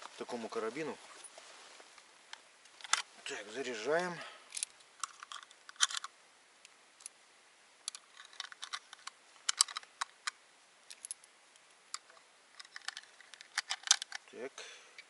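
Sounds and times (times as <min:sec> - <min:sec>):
cartridges clicking into magazine: 0:04.5 - 0:06.1, 0:07.9 - 0:11.2.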